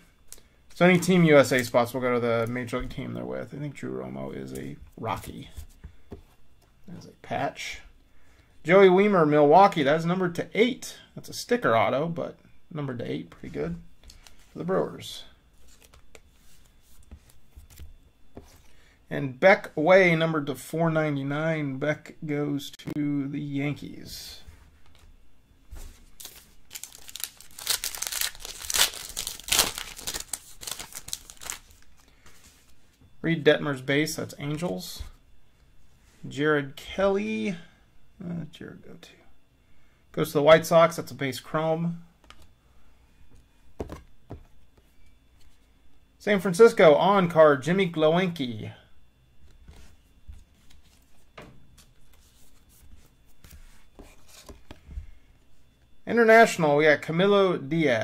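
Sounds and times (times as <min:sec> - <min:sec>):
foil wrapper tearing and crinkling: 0:26.2 - 0:31.9.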